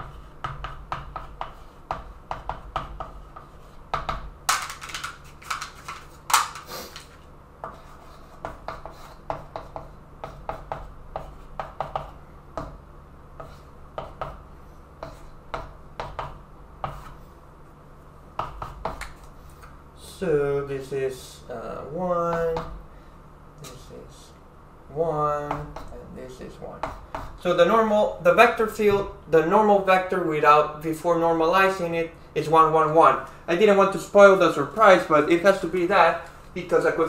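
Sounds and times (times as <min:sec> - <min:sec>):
scratchy chalk strokes: 0:00.0 - 0:03.9, 0:06.7 - 0:12.2
chalk tapping on chalkboard: 0:00.0 - 0:06.0, 0:07.6 - 0:12.8, 0:13.4 - 0:14.4, 0:15.0 - 0:17.2, 0:18.4 - 0:19.7, 0:25.4 - 0:26.0, 0:26.8 - 0:27.4.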